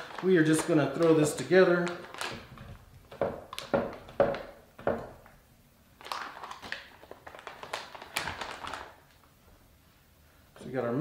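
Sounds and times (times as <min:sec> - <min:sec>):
plastic bag crinkling: 0:00.0 - 0:04.5, 0:06.0 - 0:09.3.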